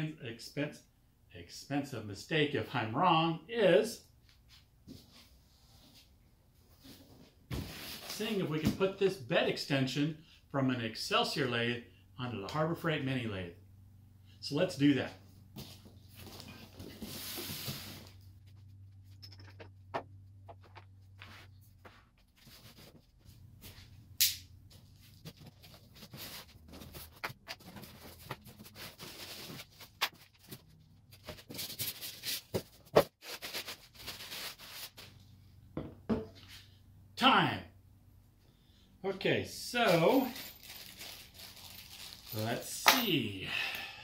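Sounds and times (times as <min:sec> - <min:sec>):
plastic wrap crinkling: 0:40.4 - 0:42.4.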